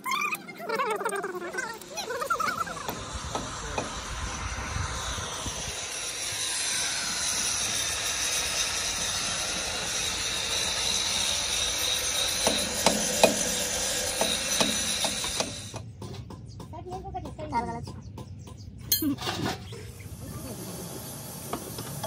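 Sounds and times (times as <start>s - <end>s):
sharp metallic knocks: 12.3s - 13.5s, 14.2s - 19.1s.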